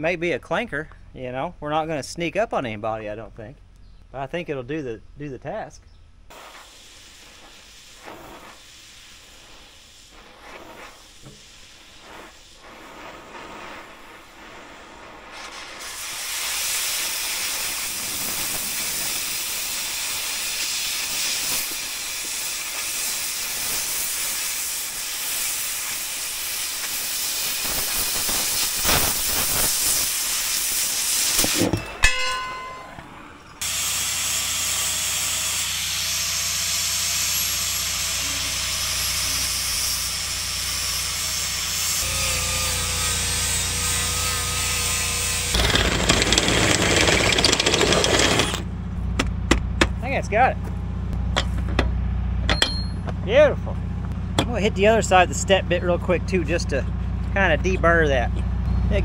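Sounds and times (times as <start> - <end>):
cutting torch hissing: 6.3 - 31.8, 33.6 - 48.7
cordless drill whining through steel: 33.6 - 48.7.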